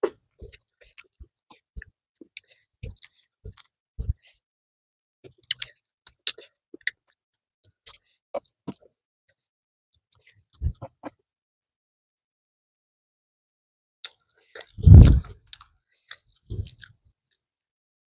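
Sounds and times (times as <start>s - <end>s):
chewing: 0.4s - 4.3s, 5.4s - 8.9s, 14.0s - 17.0s.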